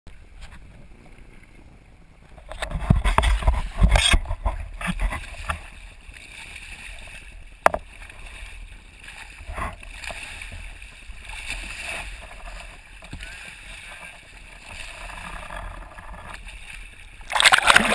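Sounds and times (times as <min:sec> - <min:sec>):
choppy sea water: 0:00.1 - 0:17.9
wind: 0:00.1 - 0:17.9.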